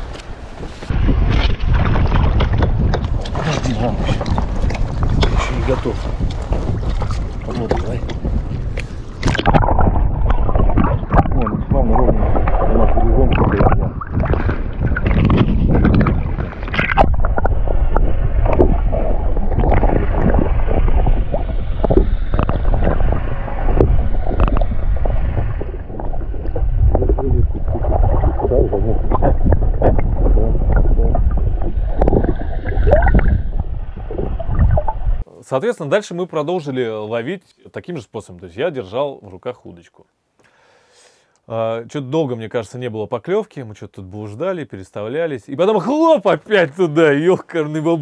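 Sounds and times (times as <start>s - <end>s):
muffled underwater water rushing: 0.0s - 35.3s
underwater knocks and gurgles: 0.9s - 35.2s.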